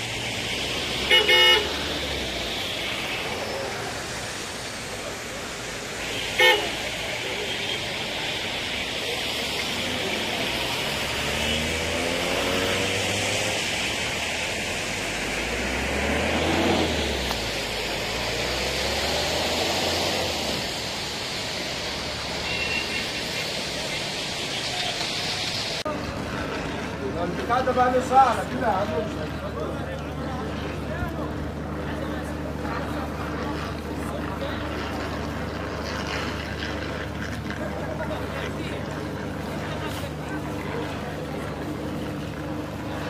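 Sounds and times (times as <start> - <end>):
road traffic: 0.0 - 43.0
car horns tooting: 1.0 - 1.8, 6.1 - 6.8, 22.4 - 23.2.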